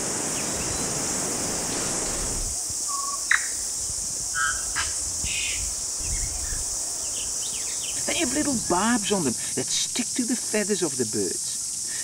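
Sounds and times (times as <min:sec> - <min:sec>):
insect chorus: 0:00.0 - 0:12.0
bird singing: 0:05.3 - 0:09.3.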